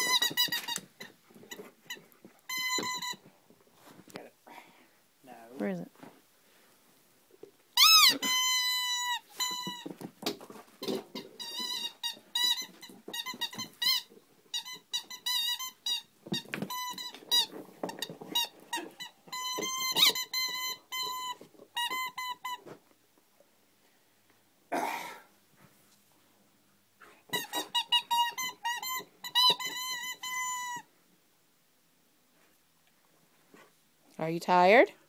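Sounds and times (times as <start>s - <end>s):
squeaky dog toy squeaking: 0.0s - 3.3s, 7.8s - 22.7s, 27.3s - 30.9s.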